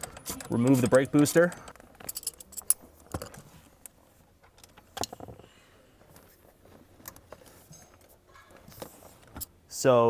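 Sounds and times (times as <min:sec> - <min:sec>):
metallic clicks of hand tools: 0:00.0 - 0:04.0.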